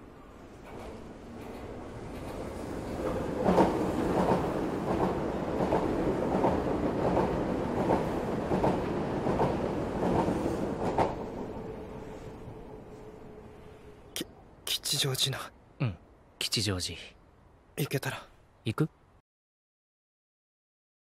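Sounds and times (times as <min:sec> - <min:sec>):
train rumble: 0:00.0 - 0:14.1.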